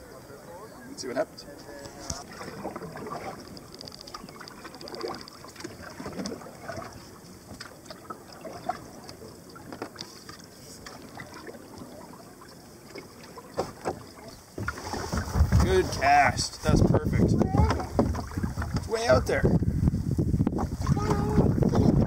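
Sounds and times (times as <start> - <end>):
paddle dipping through water: 1.5 - 16.7, 17.3 - 19.2, 20.2 - 22.0
small splashes and drips: 2.3 - 15.2.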